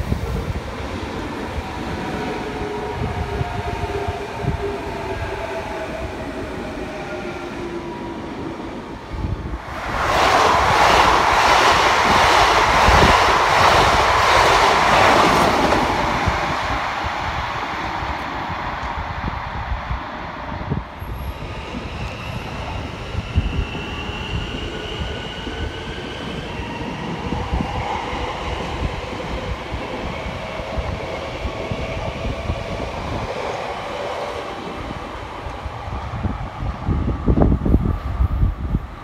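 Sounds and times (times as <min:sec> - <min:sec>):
train wheels rattling on rails: 0:09.8 - 0:17.5.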